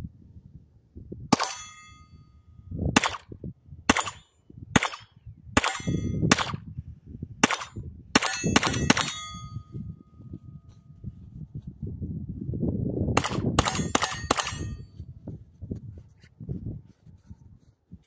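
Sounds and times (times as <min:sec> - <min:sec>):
steel target clanging: 0:01.3 - 0:02.4, 0:03.9 - 0:06.6, 0:07.4 - 0:09.7, 0:13.6 - 0:14.8
pistol shots: 0:03.0 - 0:03.3, 0:03.9 - 0:04.2, 0:04.8 - 0:06.6, 0:07.4 - 0:09.3, 0:13.2 - 0:14.7.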